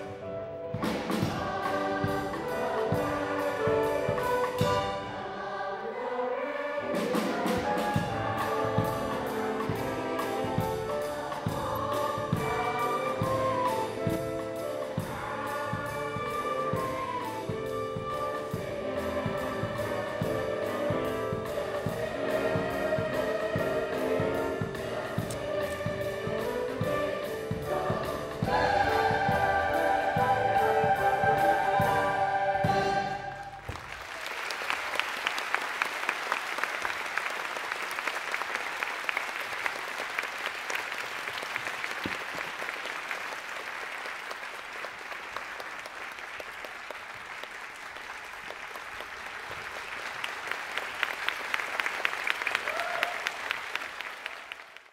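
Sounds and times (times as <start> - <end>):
children's choir singing: 0.0 - 33.6
audience applause: 33.6 - 54.9.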